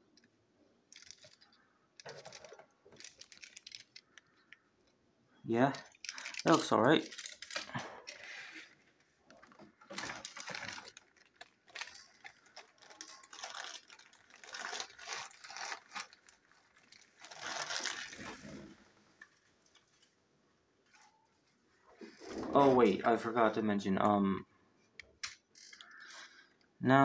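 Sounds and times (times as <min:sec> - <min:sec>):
plastic bag crinkling: 0:00.9 - 0:04.6, 0:05.8 - 0:08.5, 0:09.4 - 0:20.1
plastic toy parts clicking: 0:00.9 - 0:04.6, 0:05.8 - 0:07.7.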